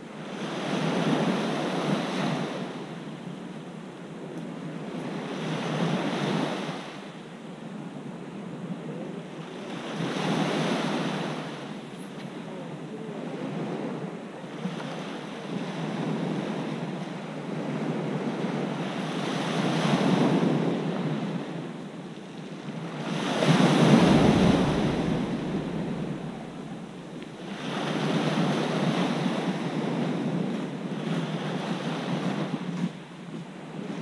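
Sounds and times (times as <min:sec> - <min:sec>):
waves breaking on pebble shore: 0:22.5 - 0:32.8.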